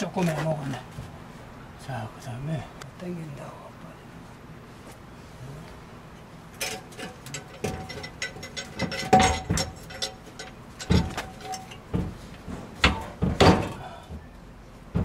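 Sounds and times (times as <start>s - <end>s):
metal clanks and knocks: 6.5s - 14.3s.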